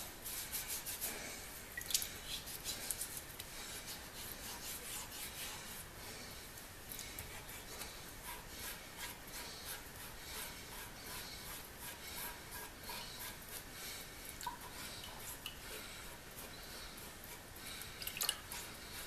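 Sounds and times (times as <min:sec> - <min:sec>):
hand rubbing wet steel blade: 0:00.0 - 0:05.9, 0:07.2 - 0:13.8.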